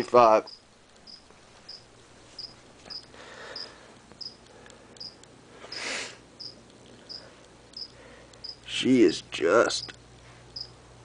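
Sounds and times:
cricket chirping: 0.4s - 4.4s, 5.0s - 5.8s, 6.4s - 8.6s.

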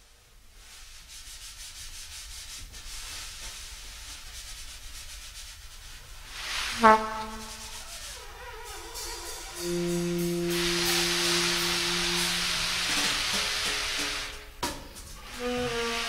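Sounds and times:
free improvised jazz trio: 6.3s - 16.0s
loud horn note: 6.6s - 14.2s.

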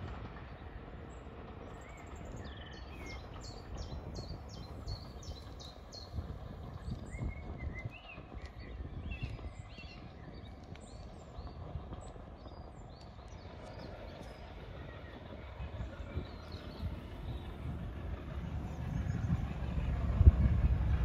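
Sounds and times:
low outdoor rumble: 0.0s - 21.0s
small birds chirping: 1.1s - 17.7s.

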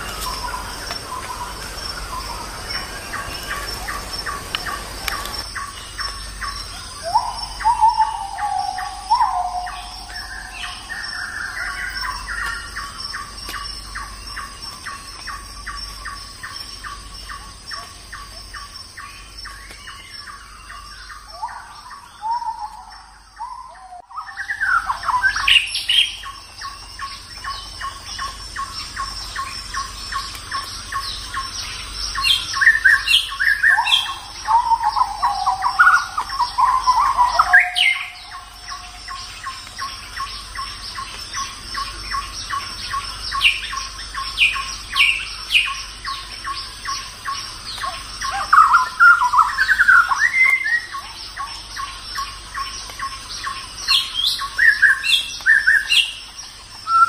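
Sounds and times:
birds chirping and whistling: 0.0s - 57.0s.

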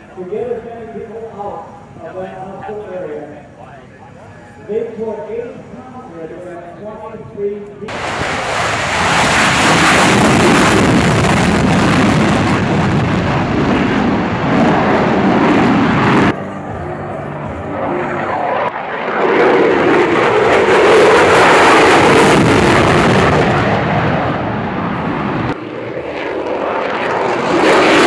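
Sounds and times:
jet roaring past: 7.9s - 28.0s.

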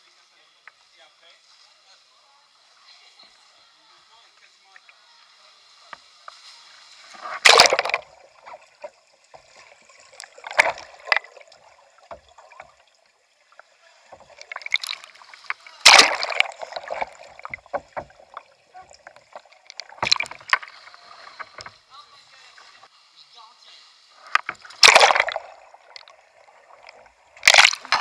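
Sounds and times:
loud water splashes: 7.0s - 8.6s, 10.2s - 11.6s, 14.1s - 21.4s, 24.4s - 26.1s, 26.7s - 28.0s
water bubbling and gurgling: 7.1s - 21.8s, 24.2s - 28.0s.

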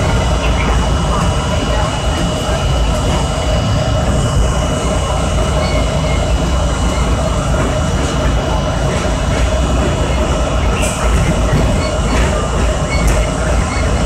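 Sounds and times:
high-pitched whine: 0.0s - 14.0s
subway train rumble: 0.0s - 14.0s.

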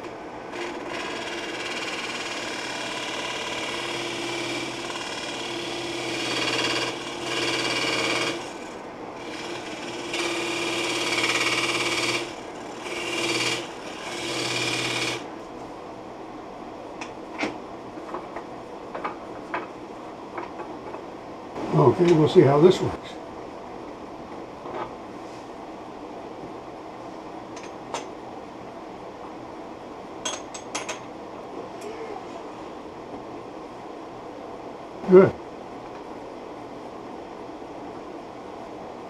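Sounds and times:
wood lathe humming: 0.0s - 15.3s.

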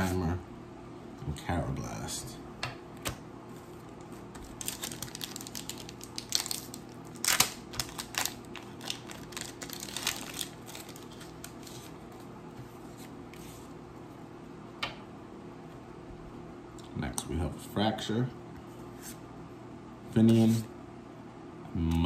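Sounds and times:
cards and foil wrapper crinkling: 4.3s - 12.2s.

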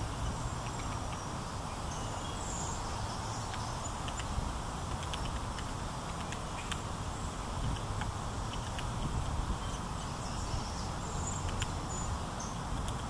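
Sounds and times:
low outdoor rumble: 0.0s - 13.0s
small ticks: 0.2s - 1.3s, 3.4s - 6.9s, 7.6s - 9.8s, 11.3s - 11.8s, 12.7s - 13.0s.

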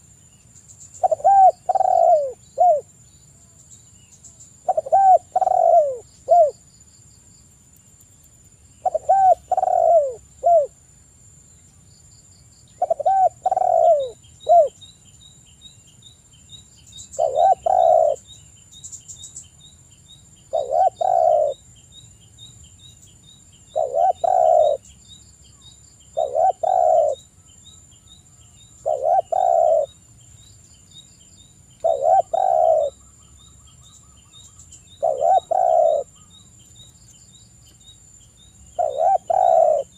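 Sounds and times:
dove cooing: 1.0s - 2.9s, 4.6s - 6.6s, 8.8s - 10.8s, 12.8s - 14.8s, 17.2s - 18.2s, 20.5s - 21.6s, 23.7s - 24.9s, 26.1s - 27.2s, 28.8s - 30.0s, 31.8s - 33.0s, 34.9s - 36.2s, 38.8s - 39.9s.

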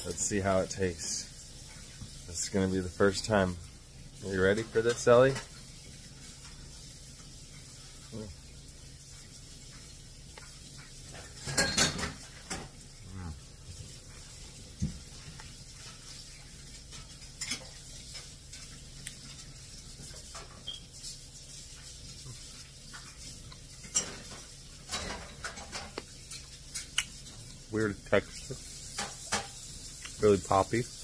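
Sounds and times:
person chewing toast: 12.8s - 19.7s.

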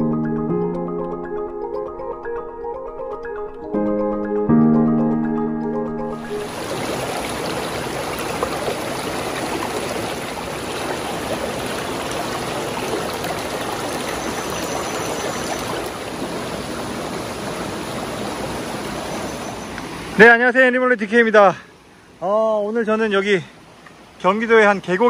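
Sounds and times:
stream running over rocks: 6.3s - 20.5s.

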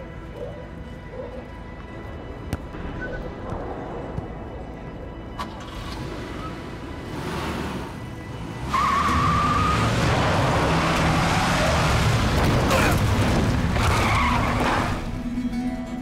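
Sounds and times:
car engine revving: 5.4s - 15.1s
tyres squealing and skidding: 5.5s - 15.2s.

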